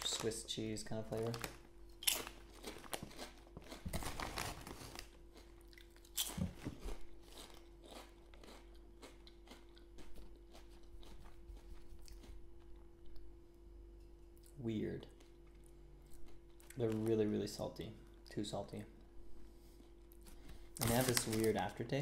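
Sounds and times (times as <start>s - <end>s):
potato chip crunching: 0.0s - 12.7s, 20.8s - 21.8s.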